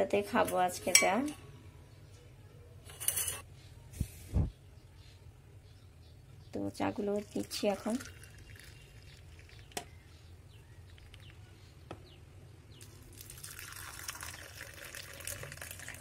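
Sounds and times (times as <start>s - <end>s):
tea trickling into mugs: 6.8s - 11.6s, 12.8s - 16.0s.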